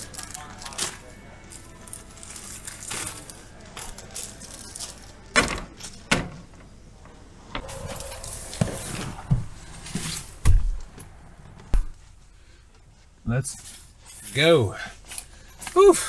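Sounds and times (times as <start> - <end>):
bags of metal nuts rattling: 0.0 - 6.1.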